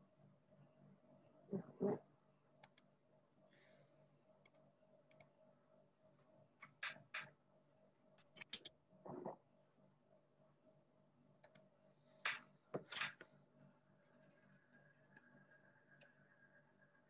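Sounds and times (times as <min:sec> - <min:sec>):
low electrical hum: 0:00.0 - 0:17.0
faint computer clicks: 0:02.6 - 0:02.9, 0:11.4 - 0:11.7.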